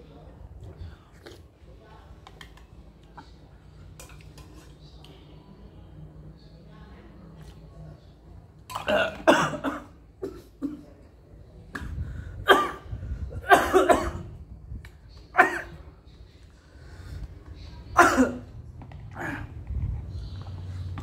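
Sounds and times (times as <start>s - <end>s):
man coughing: 13.4s - 14.3s.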